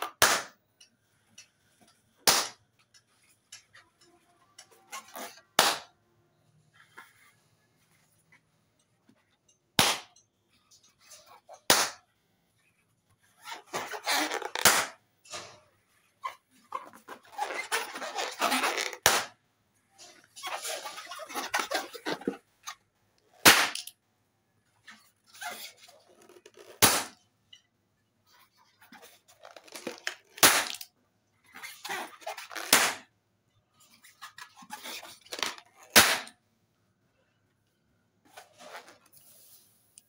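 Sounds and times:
rubbery rustling of balloons: 0:01.1 - 0:06.0, 0:10.6 - 0:23.5, 0:24.8 - 0:27.2, 0:28.3 - 0:33.1, 0:33.7 - 0:36.4, 0:38.2 - 0:39.9
balloons bursting: 0:02.2 - 0:02.6, 0:05.1 - 0:05.9, 0:09.8 - 0:10.1, 0:13.7 - 0:15.0, 0:17.4 - 0:19.4, 0:23.4 - 0:23.8, 0:26.7 - 0:27.2, 0:30.3 - 0:30.8, 0:32.6 - 0:33.0, 0:35.9 - 0:36.3.

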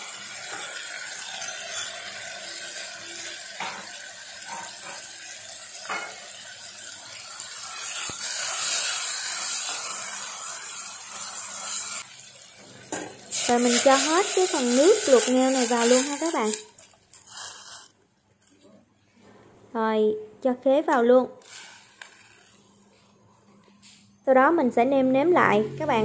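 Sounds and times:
food sizzling in hot oil: 0:00.0 - 0:18.0, 0:21.4 - 0:23.1.

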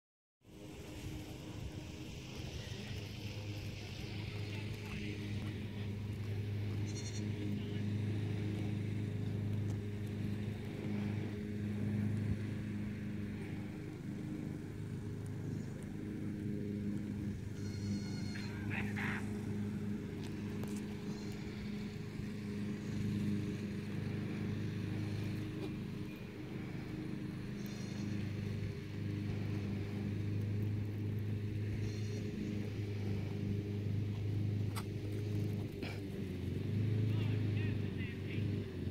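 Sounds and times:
low mechanical drone: 0:00.4 - 0:38.9
high-pitched animal call: 0:17.6 - 0:19.2.

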